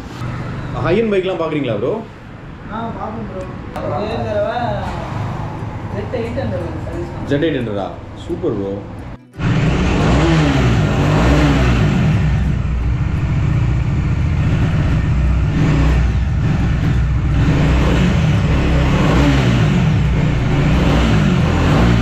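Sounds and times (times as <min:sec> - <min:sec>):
wind and road noise: 0:00.0 - 0:22.0
motorcycle engine running: 0:09.3 - 0:22.0.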